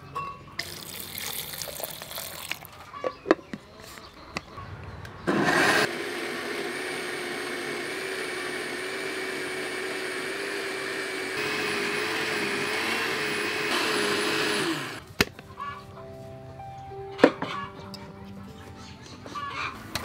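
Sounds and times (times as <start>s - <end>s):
blender motor whine: 5.3s - 15.0s.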